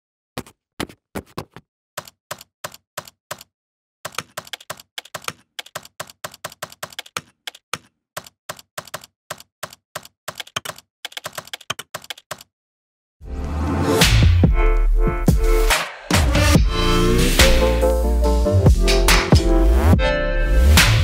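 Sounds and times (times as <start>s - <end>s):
keyboard keystrokes: 4.1s - 12.5s.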